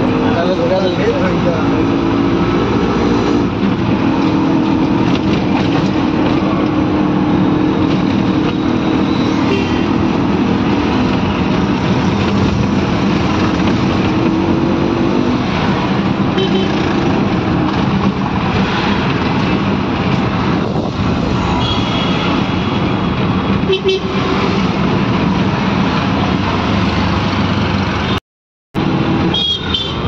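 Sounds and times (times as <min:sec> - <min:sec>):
auto-rickshaw engine running: 0:00.0 - 0:21.4
road and traffic noise: 0:00.0 - 0:28.2, 0:28.8 - 0:30.0.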